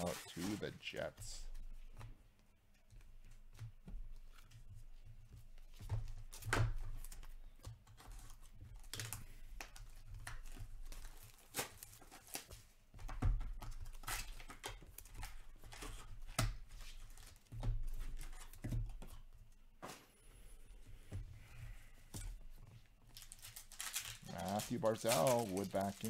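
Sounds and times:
trading cards rustling and clicking: 0:00.0 - 0:02.2, 0:21.7 - 0:26.0.

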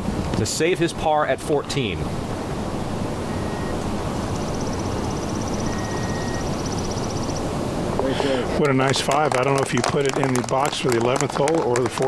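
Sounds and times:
faint high-pitched ticking trill: 0:03.3 - 0:07.5.

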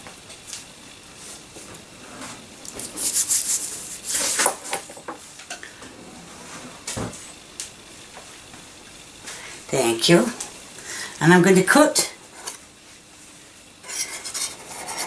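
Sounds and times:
hands rubbing pastry on board: 0:02.8 - 0:04.4.

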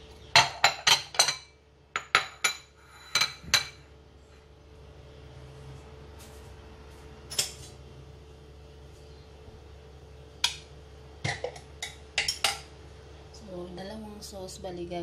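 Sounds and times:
steady low hum: 0:00.0 - 0:15.0
dishes and utensils clinking: 0:00.3 - 0:03.8, 0:11.2 - 0:12.7.

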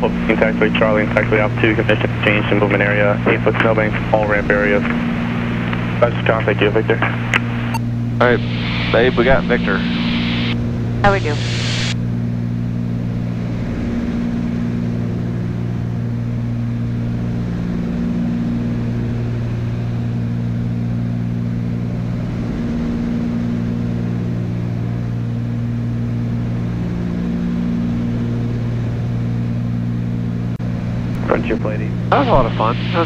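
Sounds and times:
twin propeller plane cabin drone: 0:00.0 - 0:33.0
rushing air noise: 0:07.1 - 0:12.0.

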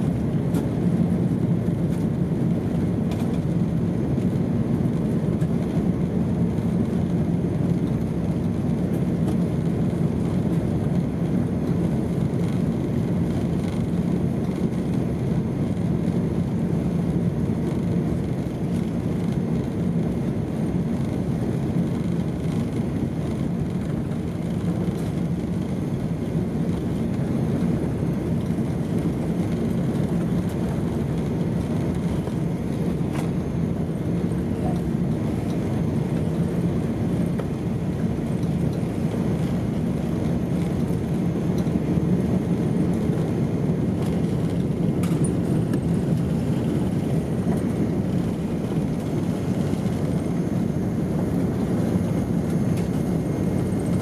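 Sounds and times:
jet engines rumbling on takeoff: 0:00.0 - 0:54.0.

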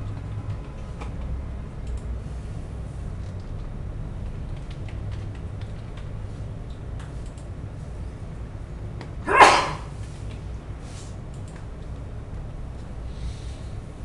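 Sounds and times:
keyboard keys clicking: 0:03.2 - 0:07.5.

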